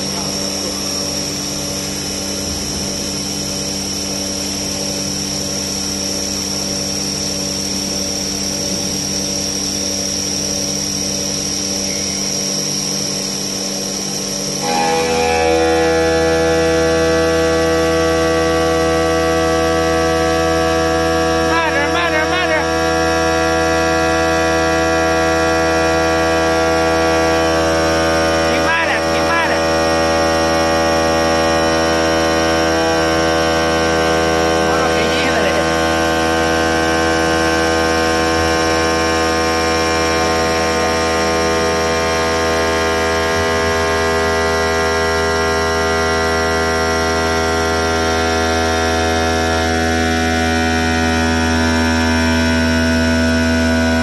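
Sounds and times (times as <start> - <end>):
cnc machine humming: 0.0 - 54.0.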